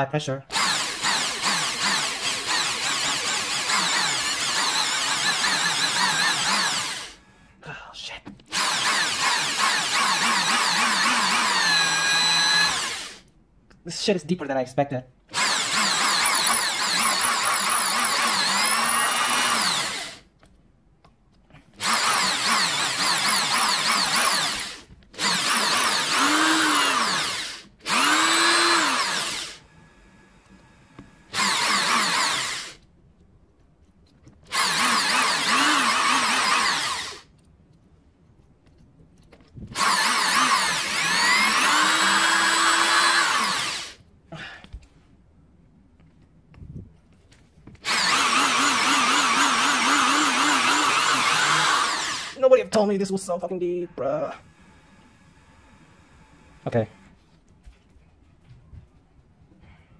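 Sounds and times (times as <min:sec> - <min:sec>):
electric drill drilling: 0:00.5 - 0:07.4, 0:08.5 - 0:13.3, 0:15.3 - 0:20.3, 0:21.8 - 0:32.8, 0:34.5 - 0:37.3, 0:39.7 - 0:44.0, 0:47.8 - 0:52.4.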